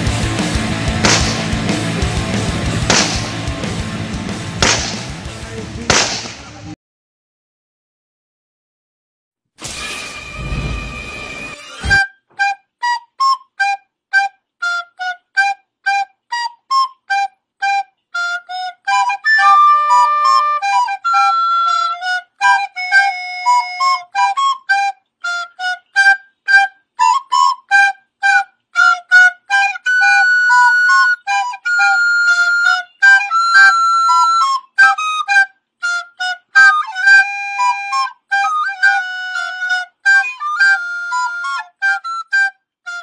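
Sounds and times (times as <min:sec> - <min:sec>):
solo flute melody: 0:10.2 - 0:43.0.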